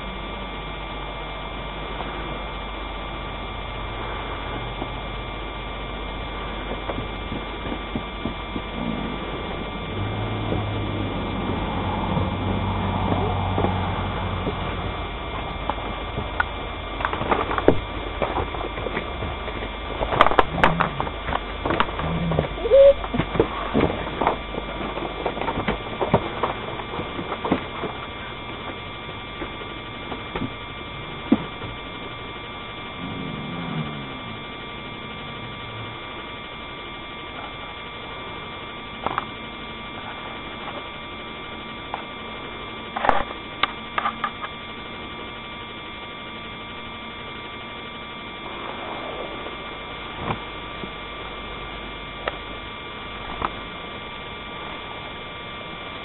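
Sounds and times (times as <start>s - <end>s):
electrical hum: 0.0s - 56.0s
high steady tones: 25.7s - 56.0s.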